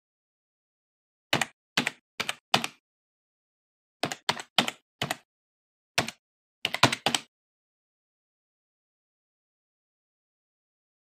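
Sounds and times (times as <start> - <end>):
keyboard typing: 1.4 - 2.8, 4.0 - 5.3, 6.0 - 7.3.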